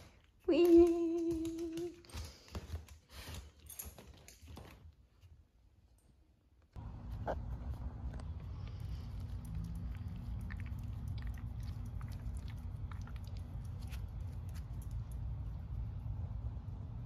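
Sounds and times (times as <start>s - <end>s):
steady low rumble: 6.8s - 17.0s.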